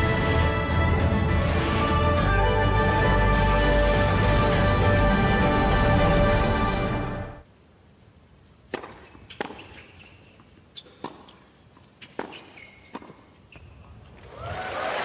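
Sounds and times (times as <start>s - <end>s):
racquet hitting tennis ball: 8.7s - 9.8s, 12.0s - 13.3s
tennis ball bouncing: 8.7s - 13.7s
crowd applause: 14.3s - 15.0s.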